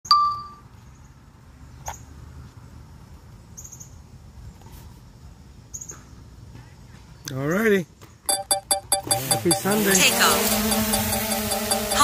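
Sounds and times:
faint clicks and high ticks: 10.4s - 12.0s.

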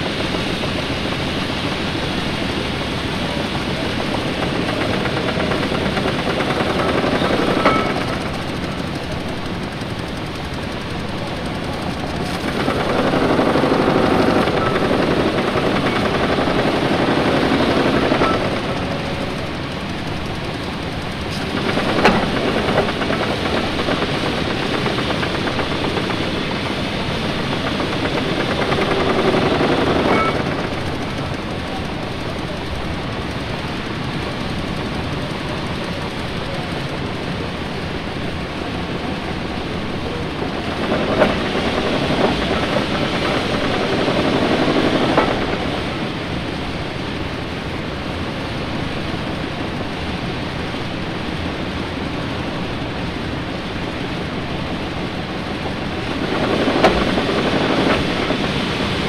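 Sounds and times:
steam engine clatter and chugging: 0.0s - 59.0s
sharp metal clanks: 4.9s - 8.3s.

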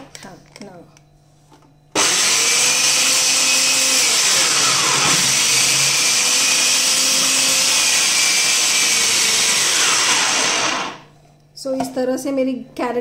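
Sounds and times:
food processor shredding carrots: 2.0s - 11.1s.

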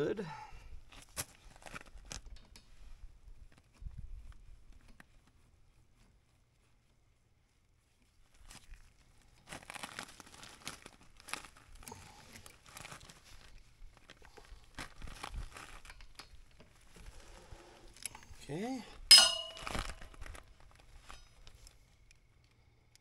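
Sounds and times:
towel rustling and crinkling: 3.1s - 17.3s.

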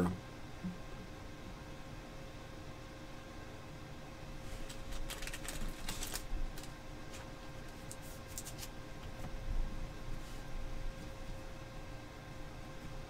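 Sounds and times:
faint steady hum: 0.0s - 13.0s
trading cards rustling and tapping: 4.6s - 8.7s.

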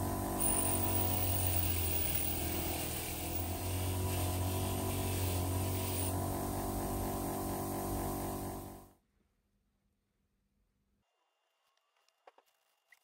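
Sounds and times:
power tool motor running: 0.0s - 8.9s.

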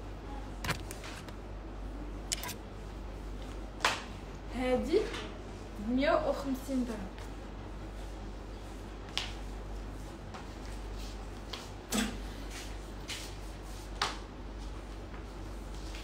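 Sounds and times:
low electrical hum: 0.0s - 16.0s
sharp clicks and knocks: 0.6s - 1.0s, 2.3s - 2.6s.

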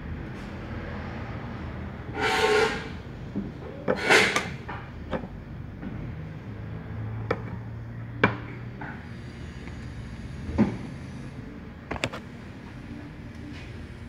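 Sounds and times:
metal parts scraping: 2.2s - 3.0s, 3.9s - 4.6s.

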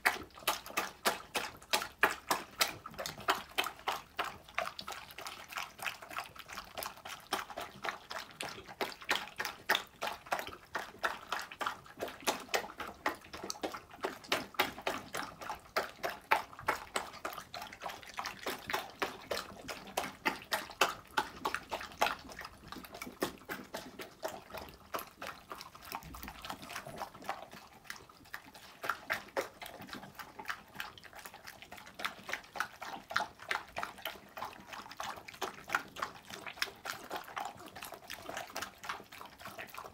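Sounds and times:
dogs chewing and slurping: 0.0s - 39.9s.

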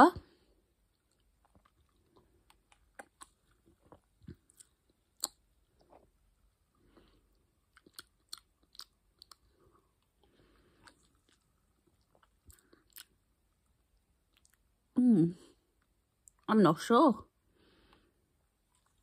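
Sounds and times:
mouth clicks and lip smacks: 1.0s - 6.0s.

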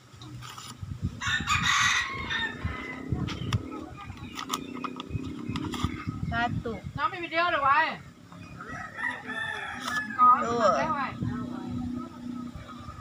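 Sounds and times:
rooster crowing: 1.2s - 3.2s, 8.6s - 10.8s.

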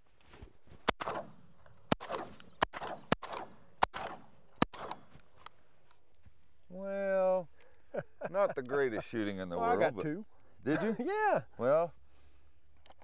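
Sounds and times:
shotgun shots with echo: 0.9s - 5.1s.

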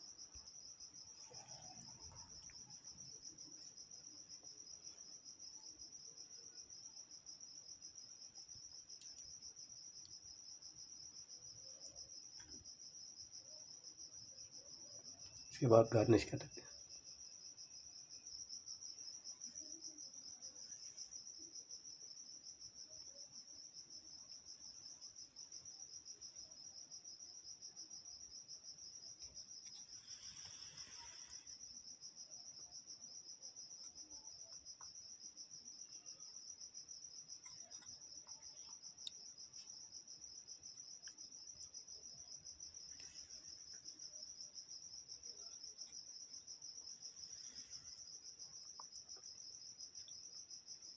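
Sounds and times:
cricket trilling: 0.0s - 50.9s
soft rustle: 29.3s - 31.7s.

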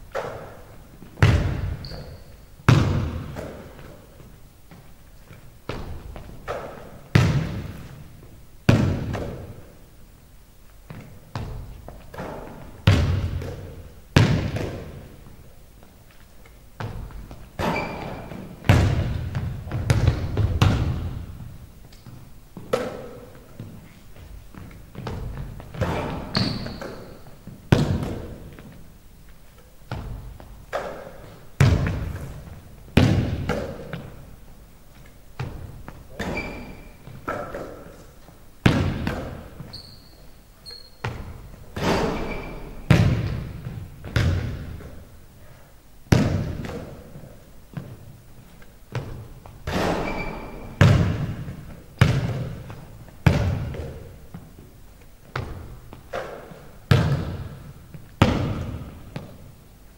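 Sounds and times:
sneakers squeaking on wood: 1.0s - 8.0s, 16.8s - 32.4s, 34.9s - 44.9s, 48.9s - 54.6s
basketball bouncing on hardwood floor: 1.1s - 8.0s, 8.7s - 9.6s, 10.9s - 15.1s, 16.8s - 21.5s, 22.1s - 28.7s, 29.9s - 34.2s, 35.4s - 37.7s, 38.6s - 40.0s, 41.0s - 45.0s, 46.1s - 48.1s, 48.9s - 54.6s, 55.2s - 59.5s.

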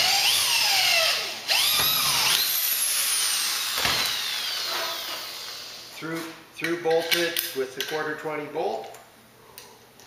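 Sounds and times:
electric drill boring into aluminium: 0.0s - 5.8s.

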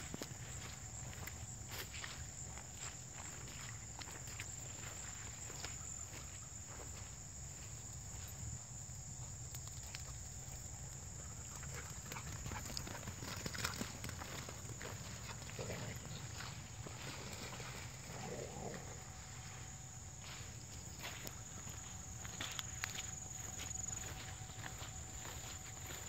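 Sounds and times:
footsteps crunching through grass: 0.0s - 8.4s, 13.9s - 26.0s.

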